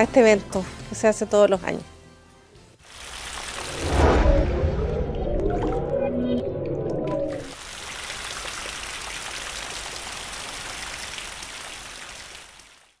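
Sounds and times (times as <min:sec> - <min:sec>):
rain falling: 0:02.8 - 0:04.3, 0:07.4 - 0:13.0
low pitched tone: 0:03.8 - 0:07.5.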